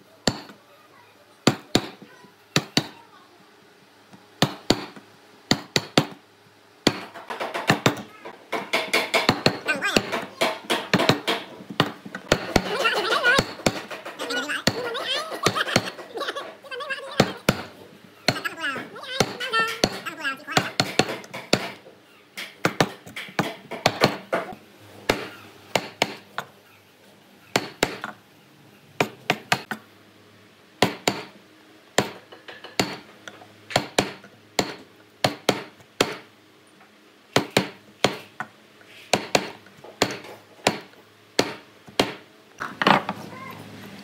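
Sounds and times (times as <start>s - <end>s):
mallet striking chisel: 19.2s - 20.0s.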